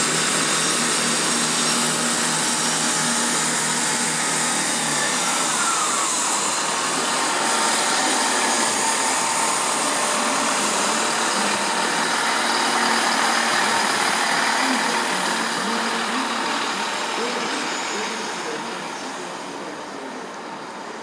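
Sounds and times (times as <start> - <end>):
train running on track: 0.0 - 21.0
falling squeal: 4.5 - 9.3.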